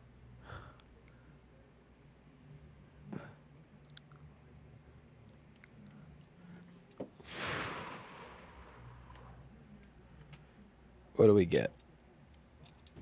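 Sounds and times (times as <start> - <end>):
short hiss: 7.3 - 8.8.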